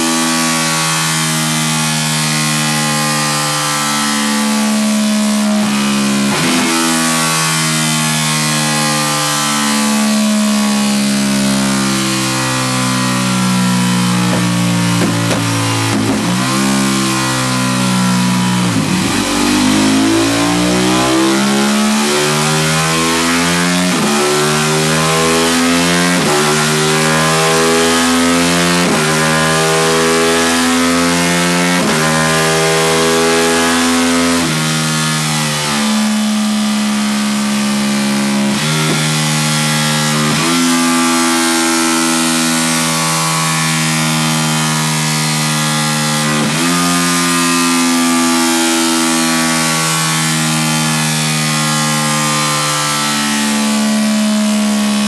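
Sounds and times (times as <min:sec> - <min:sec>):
motorcycle engine revving on dyno: 0:00.0 - 0:55.0.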